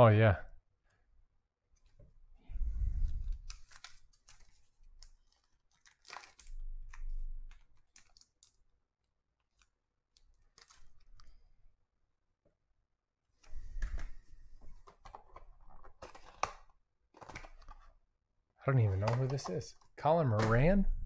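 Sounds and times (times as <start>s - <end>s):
plastic sleeve crinkling: 3.0s - 8.7s, 9.4s - 11.4s.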